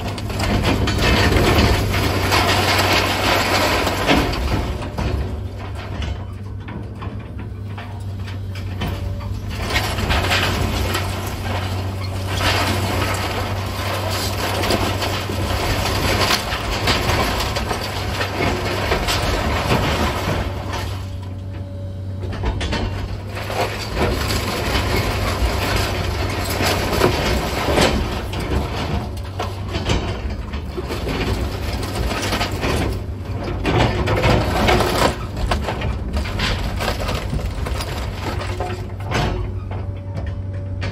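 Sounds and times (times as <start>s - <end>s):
wooden debris crunching and cracking: 0.0s - 21.5s, 22.3s - 40.4s
excavator diesel engine: 0.0s - 40.9s.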